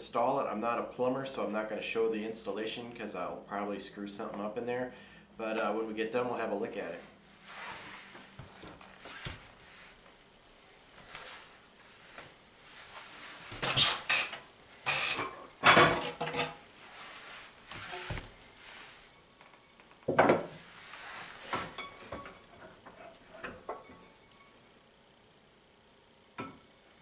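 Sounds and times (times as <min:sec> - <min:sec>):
objects clattering in cabinet: 0:13.6 - 0:16.6.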